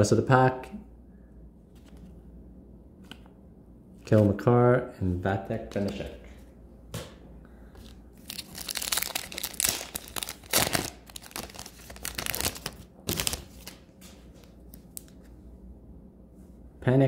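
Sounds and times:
trading cards rustling: 7.8 - 15.3.

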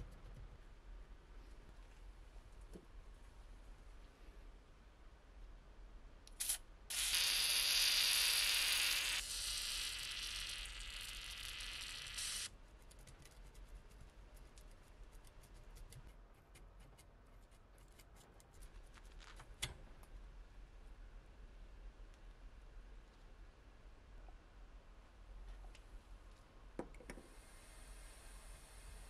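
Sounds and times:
aerosol spray hiss: 6.4 - 7.6, 12.1 - 12.5.

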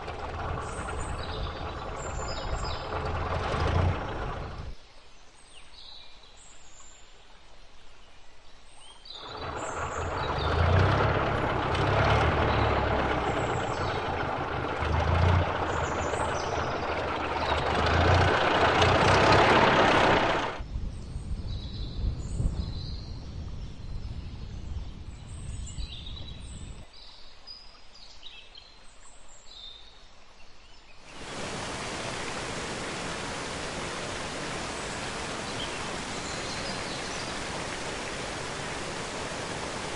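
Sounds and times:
car engine chugging past: 0.0 - 4.7, 9.2 - 20.6
falling water rushing: 0.0 - 4.8, 9.2 - 20.6, 31.1 - 39.9
birdsong: 0.0 - 39.9.

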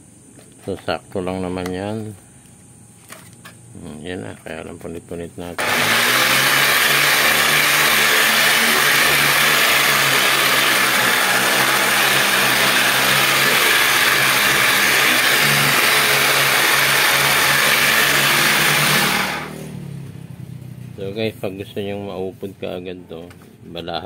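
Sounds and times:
orbital sander sanding a board: 5.6 - 19.6.

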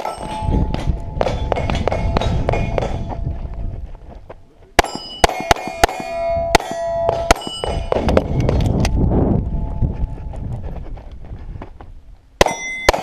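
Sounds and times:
steel targets clanging: 0.0 - 3.2, 4.8 - 8.1, 12.4 - 13.0
pistol shots: 4.8 - 8.0.

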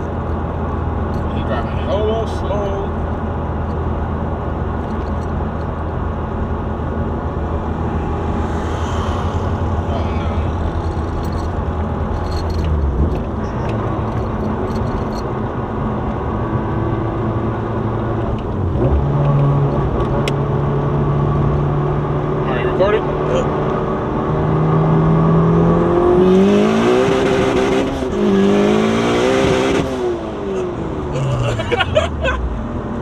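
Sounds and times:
car engine drone: 0.0 - 33.0
road noise: 0.0 - 33.0.

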